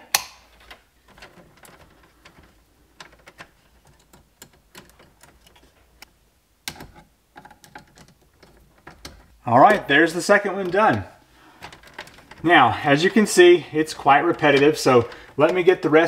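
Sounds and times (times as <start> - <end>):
hand tools clicking on wire: 6.7 - 16.0.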